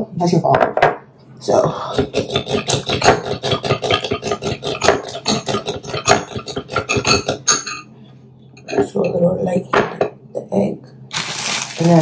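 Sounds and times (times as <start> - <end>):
fork beating egg in glass bowl: 2.0 - 7.8.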